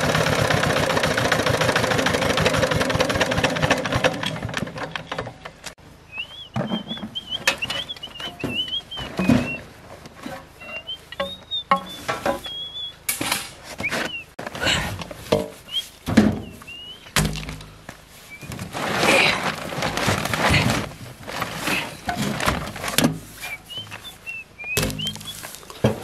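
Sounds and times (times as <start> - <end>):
small birds chirping: 6.0 - 9.7, 10.6 - 13.1, 15.6 - 17.2, 23.4 - 25.8.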